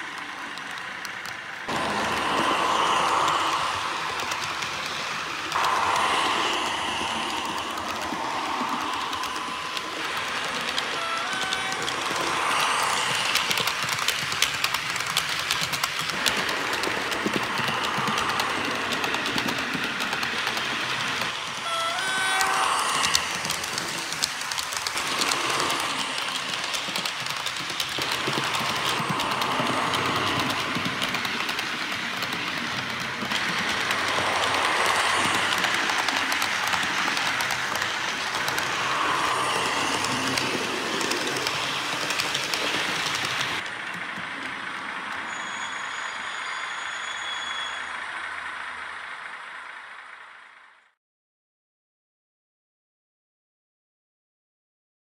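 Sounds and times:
model train coaches rattling on track: 0:00.0 - 0:50.9
diesel engine sound: 0:00.0 - 0:51.0.

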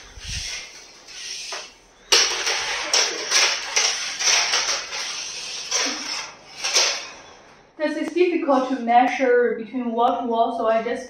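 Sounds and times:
tape measure scraping on wood: 0:00.2 - 0:01.8, 0:02.4 - 0:07.2.

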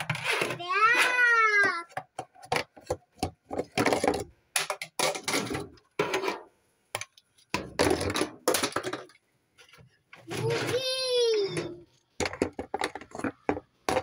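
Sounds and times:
plastic toys clattering on shelf: 0:00.0 - 0:09.2, 0:09.8 - 0:14.0.

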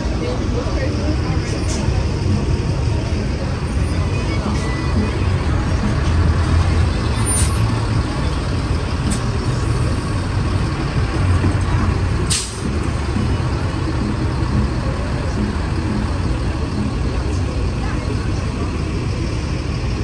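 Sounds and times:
heavy vehicle engine rumbling: 0:00.0 - 0:20.0
short sharp hisses: 0:12.3 - 0:12.6.

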